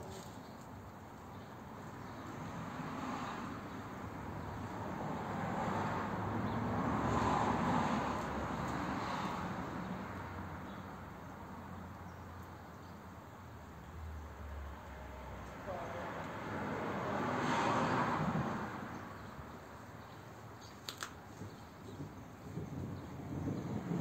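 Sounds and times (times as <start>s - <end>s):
rolling thunder rumble: 21.5s - 24.0s.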